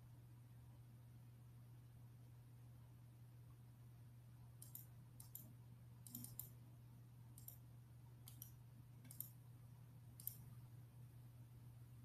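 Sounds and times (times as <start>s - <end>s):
low steady hum: 0.0s - 12.0s
faint computer mouse clicks: 4.6s - 6.6s, 7.4s - 7.6s, 8.2s - 9.4s, 10.2s - 10.5s.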